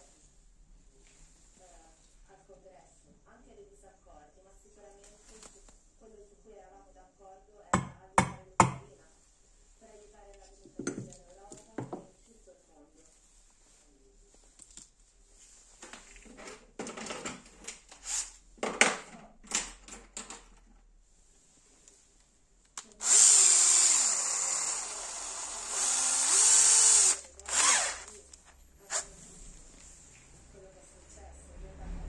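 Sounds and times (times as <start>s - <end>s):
cordless drill motor: 23.0s - 28.2s.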